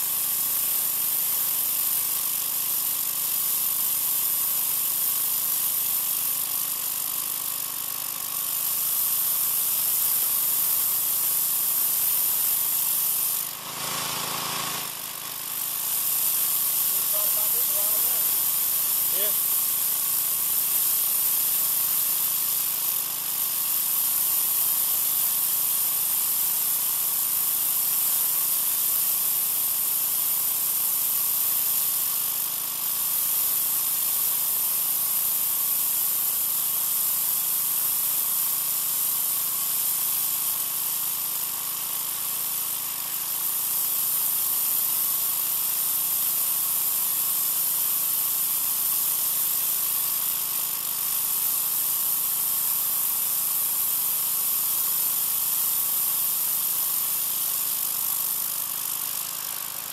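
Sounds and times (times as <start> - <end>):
pressure washer motor: 0.0 - 59.9
pressure washer water jet hissing: 8.4 - 29.6, 33.0 - 59.9.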